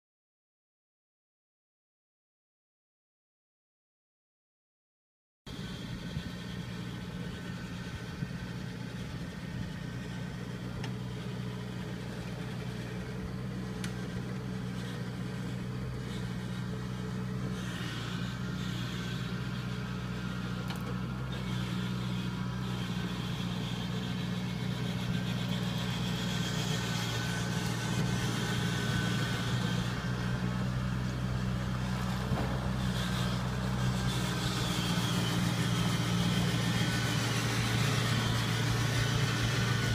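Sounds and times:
combine harvester engine humming: 5.5 - 39.9.

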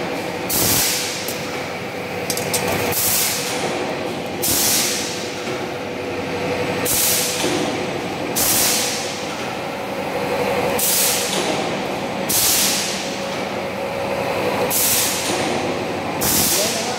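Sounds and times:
machine mechanical hum: 0.0 - 16.9.

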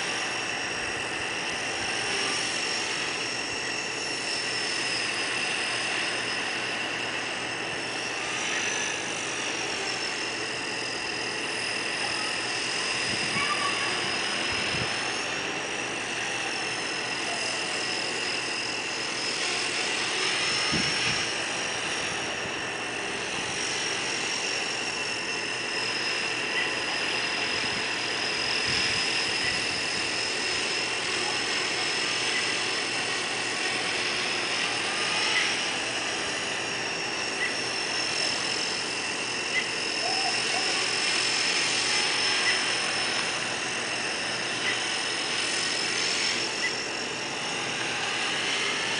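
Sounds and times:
rc helicopter whine: 0.0 - 48.9.

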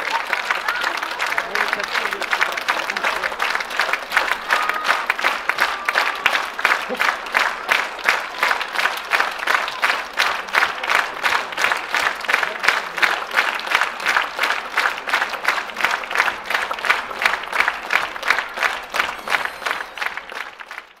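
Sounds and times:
audience clapping in rhythmic unison: 0.0 - 21.0.

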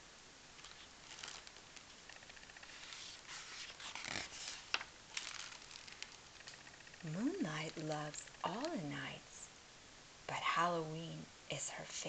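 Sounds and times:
light clicks of page settling: 0.6 - 6.2
paper page turning: 0.6 - 8.8.

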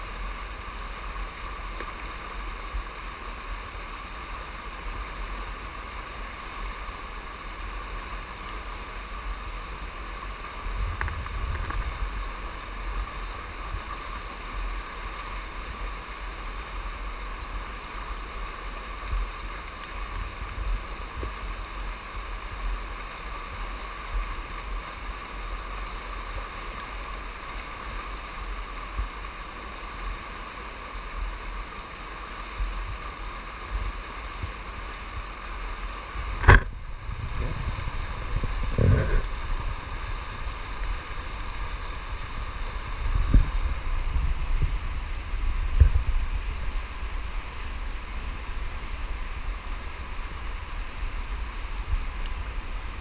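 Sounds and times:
wind buffeting microphone: 10.6 - 12.3, 36.2 - 47.4
river rapids rushing: 11.9 - 53.0.

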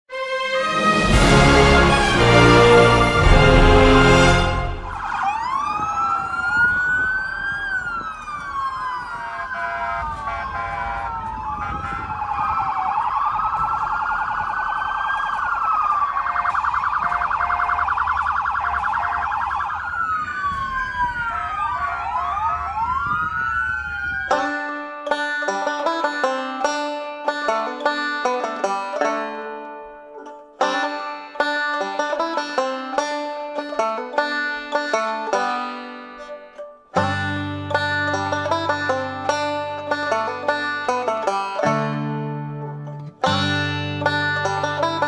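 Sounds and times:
police sirens wailing: 0.5 - 29.4, 33.6 - 45.0
low vehicle rumble: 9.8 - 24.3.

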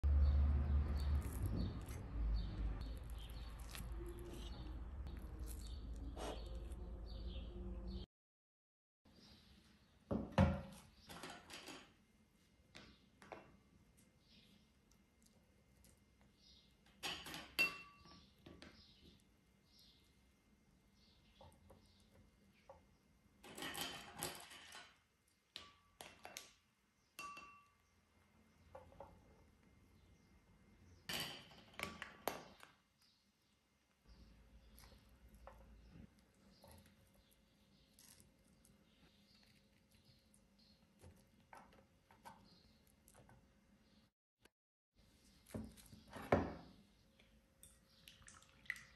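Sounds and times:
small birds chirping: 0.2 - 8.1, 14.0 - 16.9, 18.0 - 23.2, 32.4 - 44.1, 45.1 - 48.9
light clinks on glass bowl: 27.2 - 27.8.

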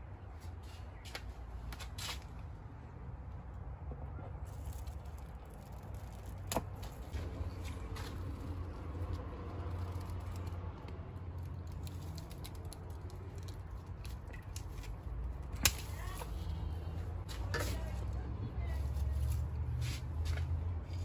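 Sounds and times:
low steady rumble: 2.3 - 21.0
foliage crackling and rustling: 4.4 - 21.0
pruning shears snipping stems: 11.4 - 16.6.

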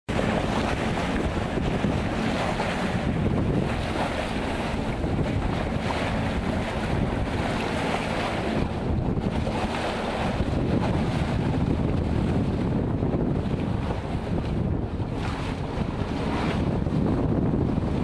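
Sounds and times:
water rushing and splashing: 0.1 - 18.0
wind buffeting microphone: 0.1 - 18.0.

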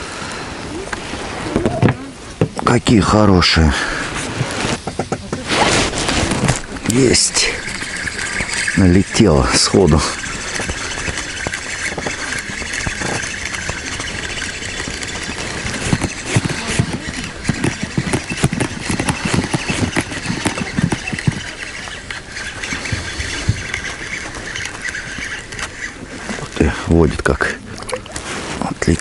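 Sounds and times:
irregular knocks and thumps: 4.7 - 5.5, 10.2 - 25.9
fishing reel winding: 6.6 - 26.5.

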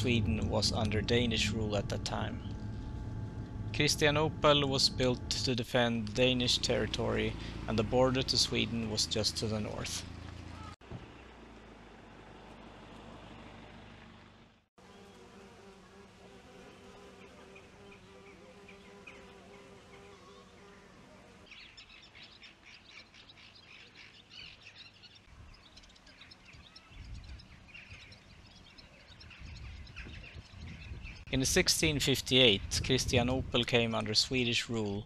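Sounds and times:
insect buzzing: 14.8 - 21.5
small birds chirping: 16.9 - 31.3
wind rumble on microphone: 26.5 - 34.3.

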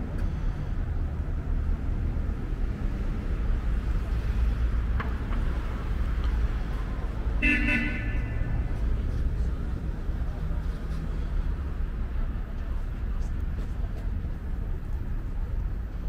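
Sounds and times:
city traffic rumble: 0.0 - 16.0
short car horn toot: 7.4 - 8.5.

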